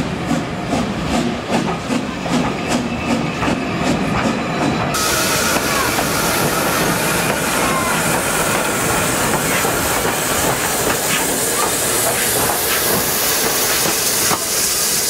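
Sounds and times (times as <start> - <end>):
steam hissing: 4.9 - 15.0.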